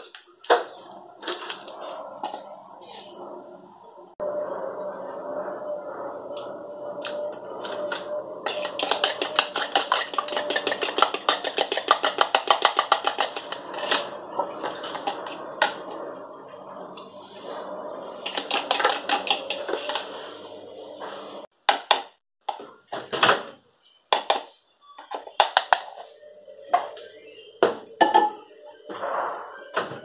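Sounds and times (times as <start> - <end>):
fork beating eggs in plastic bowl: 7.9 - 14.0, 18.2 - 20.0.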